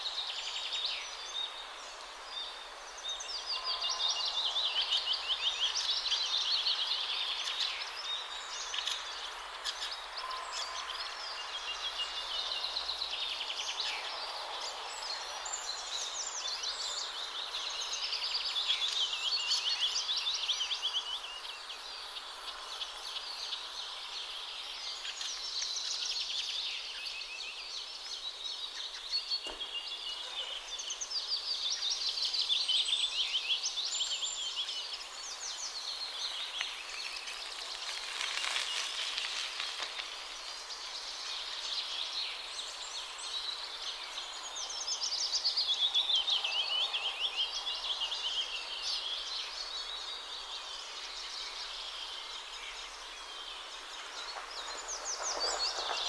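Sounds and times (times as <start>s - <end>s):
songbirds singing: 0.0s - 56.0s
distant traffic hum: 53.6s - 56.0s.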